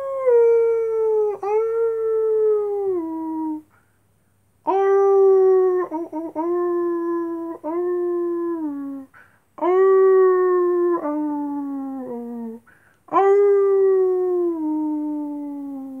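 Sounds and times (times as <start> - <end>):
breaths: 3.7 - 4.5, 9.1 - 9.6, 12.6 - 13.1.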